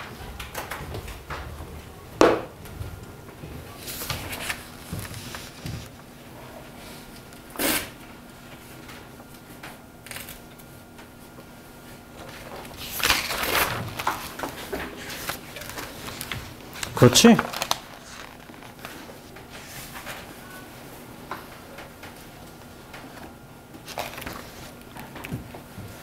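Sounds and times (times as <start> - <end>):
faint steady hum: 0.0 - 26.0
book pages rustling: 3.7 - 6.0, 12.2 - 20.4, 21.4 - 26.0.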